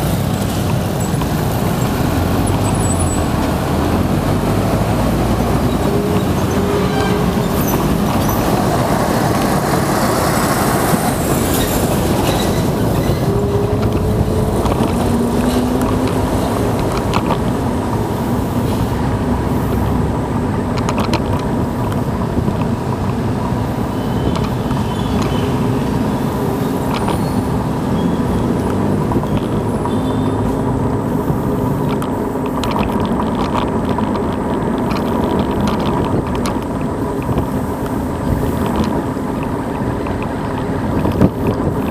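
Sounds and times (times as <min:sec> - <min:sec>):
road rumble: 0:00.0 - 0:41.9
wind rushing over microphone: 0:00.0 - 0:41.9.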